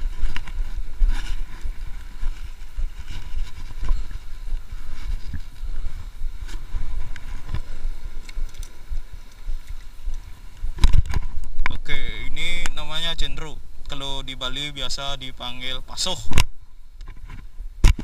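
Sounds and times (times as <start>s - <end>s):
wind buffeting microphone: 0.0s - 13.8s
faint clicks: 6.5s - 11.8s.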